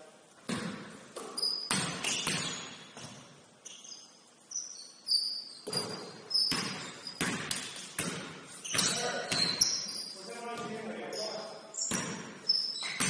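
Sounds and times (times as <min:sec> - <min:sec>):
basketball bouncing: 0:00.4 - 0:03.3, 0:05.6 - 0:09.8, 0:11.9 - 0:13.0
shoes squeaking on gym floor: 0:01.1 - 0:13.0.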